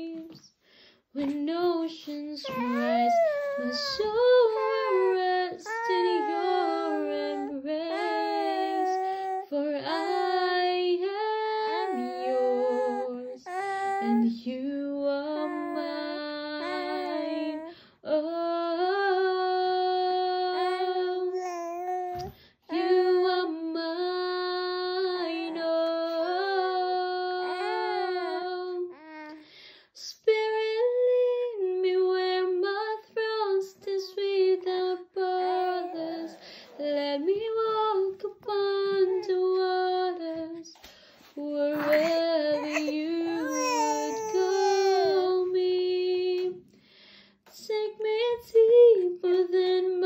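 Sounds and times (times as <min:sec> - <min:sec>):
baby humming: 0:02.4 - 0:10.7, 0:11.5 - 0:14.4, 0:15.3 - 0:17.7, 0:20.6 - 0:22.3, 0:27.2 - 0:29.4, 0:35.6 - 0:36.9, 0:38.8 - 0:39.5, 0:41.7 - 0:45.6.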